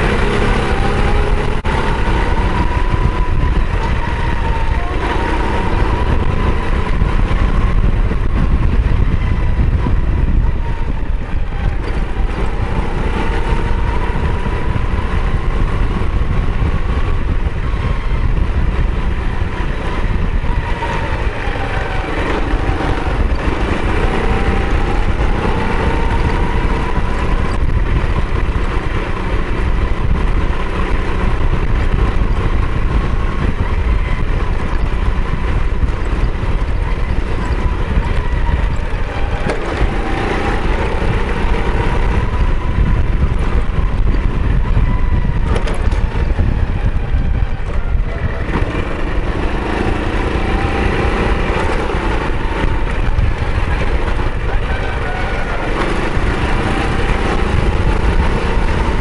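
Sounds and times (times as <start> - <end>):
vehicle motor running: 0.0 - 59.0
wind rumble on microphone: 0.0 - 59.0.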